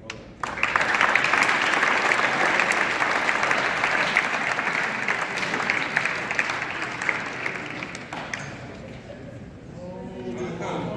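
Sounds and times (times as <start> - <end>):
audience applauding: 0.4 - 9.1.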